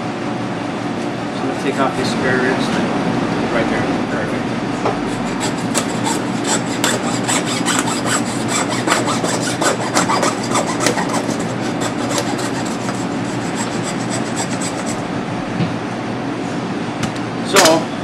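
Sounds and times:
hacksaw cutting through bone: 5.5s - 14.9s.

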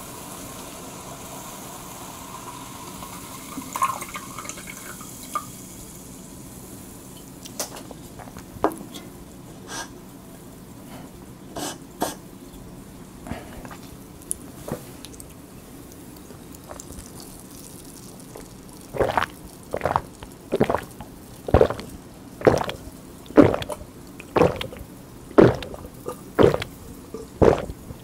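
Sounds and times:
loud swallows: 19.0s - 28.0s.

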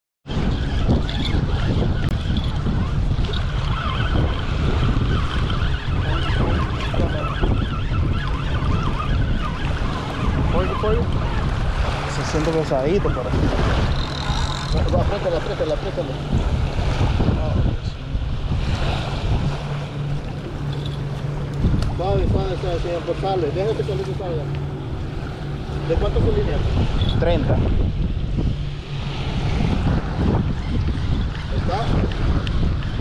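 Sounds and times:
wind buffeting microphone: 0.2s - 33.0s
small waves washing in: 9.6s - 33.0s.

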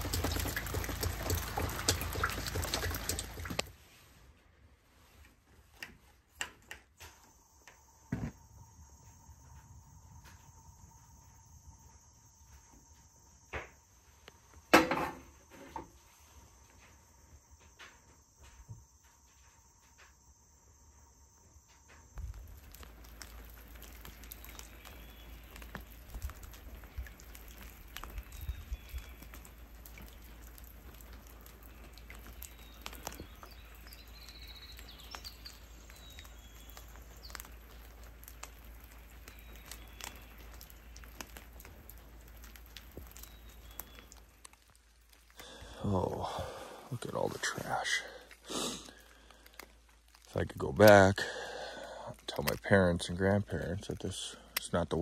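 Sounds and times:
rain pattering on a lake: 0.0s - 3.8s, 22.1s - 55.0s.

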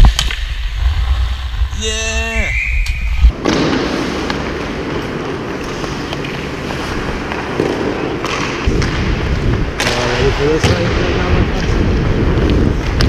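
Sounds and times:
skates scraping on ice: 3.2s - 13.0s
stick tapping pucks: 5.5s - 9.0s.

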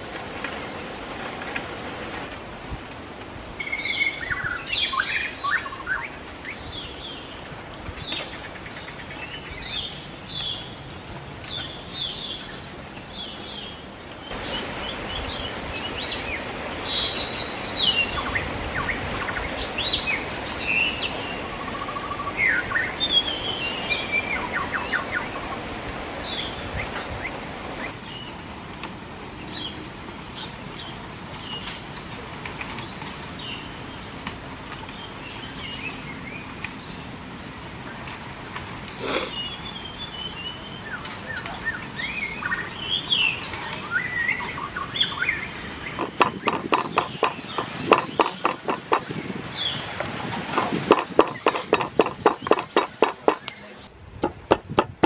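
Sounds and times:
steady background hiss: 0.0s - 55.0s
birds chirping and calling: 37.9s - 53.9s.

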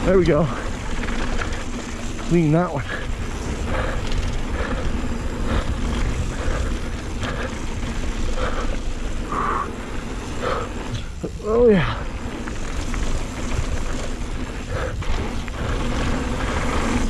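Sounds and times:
mountain bike trail rumble: 0.0s - 17.0s
wind: 0.0s - 17.0s
person breathing heavily: 2.8s - 12.4s, 14.4s - 17.0s.

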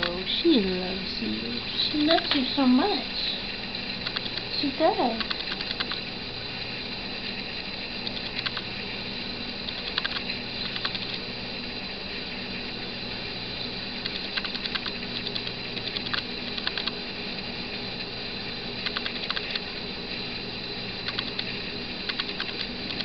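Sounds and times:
electronic hiss and hum: 0.0s - 23.0s
ratchet-like camera clicks: 4.0s - 4.5s, 5.2s - 6.0s, 8.0s - 8.7s, 9.7s - 11.2s, 14.0s - 17.0s, 18.8s - 19.7s, 21.0s - 23.0s.

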